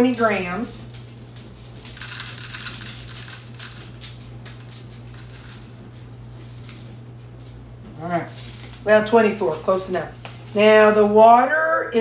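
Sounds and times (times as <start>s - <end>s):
dry oats rustling into container: 1.8s - 5.8s.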